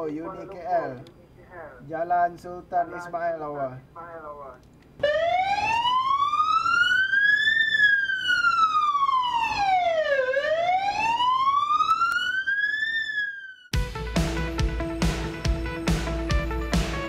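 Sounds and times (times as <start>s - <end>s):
ambulance siren wailing: 5.0s - 13.8s
music: 13.7s - 17.0s.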